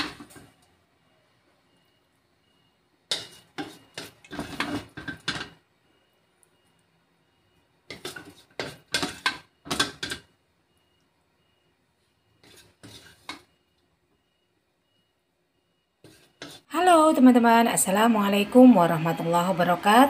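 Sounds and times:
spatula scraping a wok: 3.1 - 5.6, 7.9 - 10.3, 12.3 - 13.6, 16.0 - 16.7.

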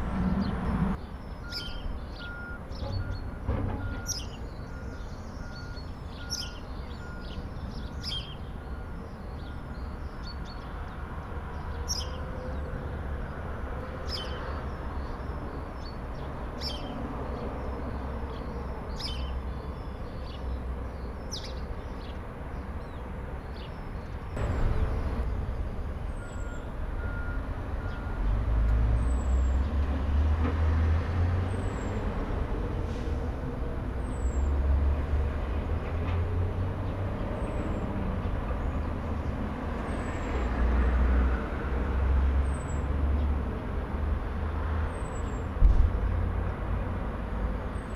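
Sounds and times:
birds chirping: 0.0 - 28.2
truck engines rumbling: 0.0 - 47.9.

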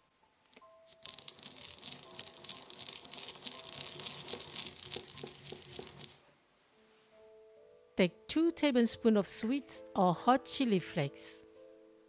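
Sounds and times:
stone pestle grinding seeds: 0.9 - 6.2.

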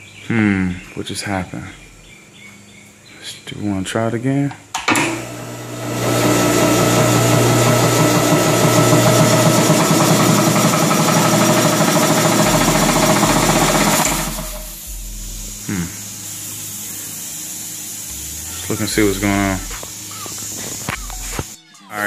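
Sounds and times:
air compressor running: 4.8 - 21.6.

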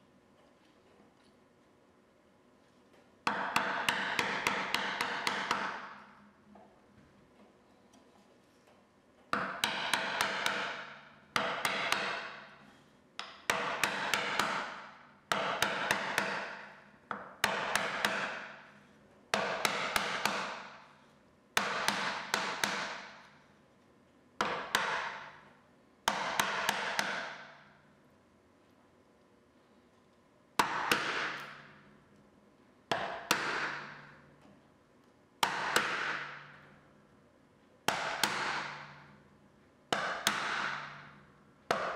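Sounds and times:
mallet tapping chisel: 3.2 - 6.0, 9.3 - 12.6, 13.2 - 18.7, 19.3 - 20.9, 21.6 - 23.3, 24.4 - 25.4, 26.1 - 27.6, 30.6 - 31.7, 32.9 - 34.2, 35.4 - 36.7, 37.9 - 39.1, 39.9 - 41.9.

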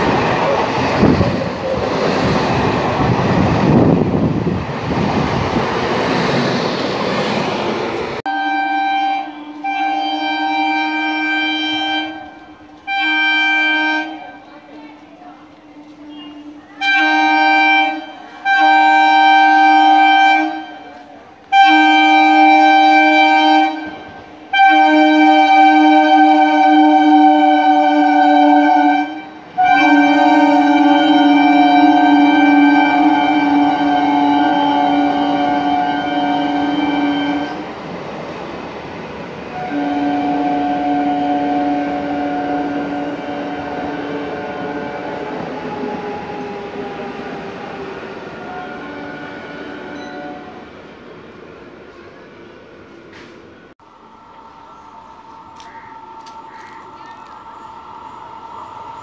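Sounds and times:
train horn blasts: 8.3 - 37.7, 39.5 - 47.7, 48.3 - 50.8.

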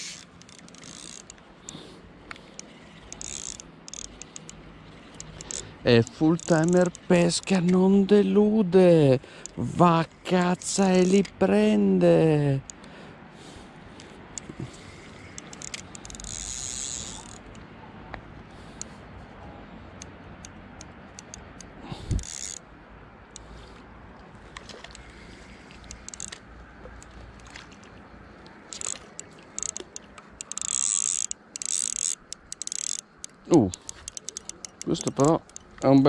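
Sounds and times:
fishing reel gears clicking: 0.0 - 8.2, 10.4 - 11.8, 14.0 - 17.6, 19.9 - 22.6, 24.9 - 26.4, 28.6 - 36.0.

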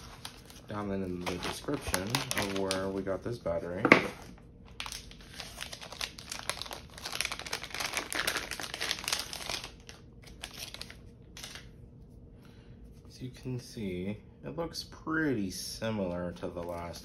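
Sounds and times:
plastic bag crinkling: 0.0 - 3.4, 4.7 - 11.7.

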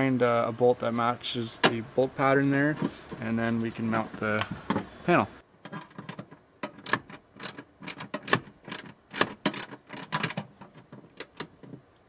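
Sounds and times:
ratchet wrench clicking: 6.8 - 10.2.

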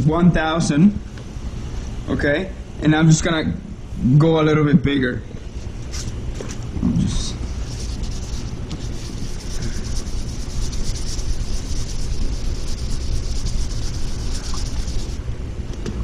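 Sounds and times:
steady low rumble: 5.4 - 16.0
sandpaper rasping: 7.5 - 15.2.

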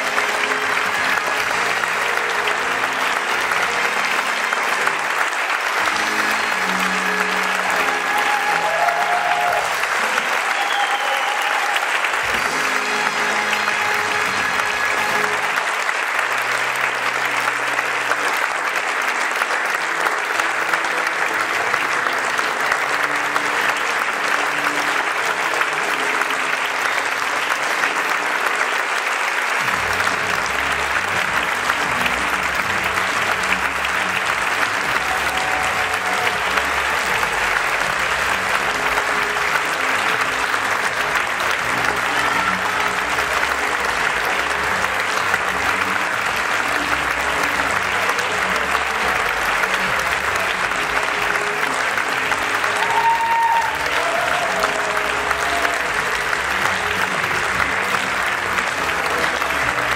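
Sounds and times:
audience applauding: 0.0 - 59.9
music playing: 0.0 - 59.9.

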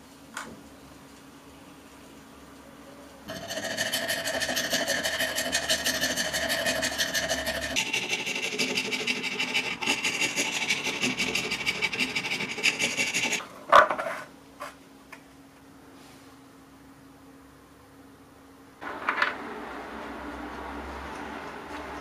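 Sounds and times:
round file rasping in metal hole: 3.3 - 13.4.

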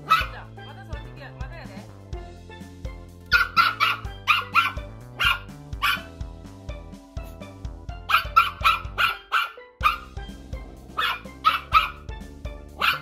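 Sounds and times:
small dog barking: 0.0 - 0.3, 3.3 - 6.1, 8.1 - 10.1, 11.0 - 12.1, 12.8 - 13.0
background music: 0.0 - 13.0.

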